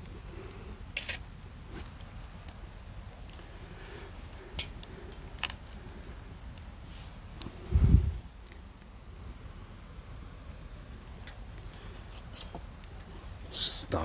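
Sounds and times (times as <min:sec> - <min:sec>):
faint low background rumble: 0:00.0 - 0:14.0.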